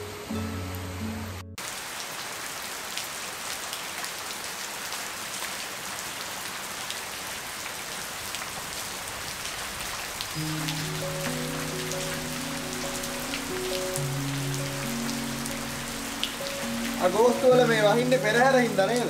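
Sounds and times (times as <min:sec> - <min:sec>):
music: 0:00.0 - 0:01.6, 0:10.4 - 0:19.0
steady rain hiss: 0:00.0 - 0:19.0
raindrops ticking on a surface: 0:01.6 - 0:19.0.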